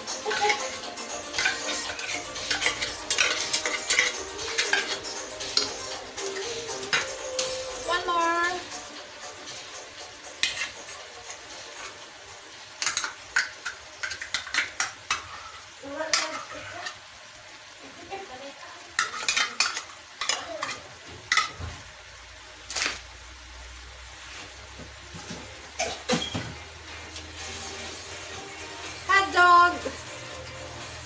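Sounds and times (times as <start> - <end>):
cooking utensils clicking and clinking: 0.0 - 17.1, 18.8 - 21.8, 22.7 - 23.1, 25.1 - 27.6
meat sizzling: 0.0 - 31.0.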